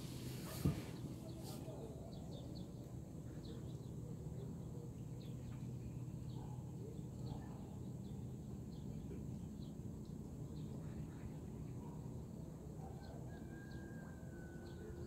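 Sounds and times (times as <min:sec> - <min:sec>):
low outdoor hum: 0:00.0 - 0:15.0.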